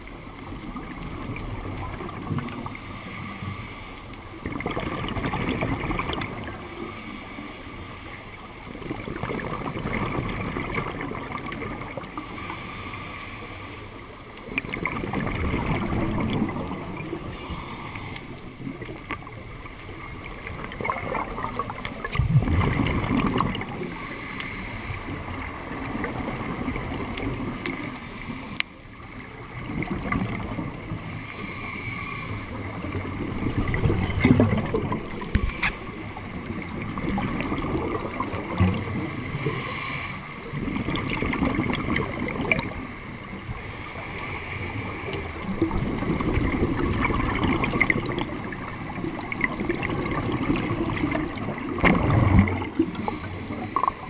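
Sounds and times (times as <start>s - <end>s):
bubbles gurgling underwater: 0.0s - 2.8s, 4.3s - 6.7s, 8.6s - 12.2s, 14.4s - 17.4s, 18.6s - 24.0s, 25.1s - 28.0s, 29.2s - 31.0s, 32.5s - 39.7s, 40.4s - 43.7s, 45.1s - 54.0s
regulator air hiss: 2.6s - 4.1s, 6.6s - 8.3s, 12.2s - 14.1s, 17.3s - 18.5s, 23.9s - 25.2s, 31.0s - 32.6s, 39.4s - 40.5s, 43.6s - 45.4s, 53.0s - 54.0s.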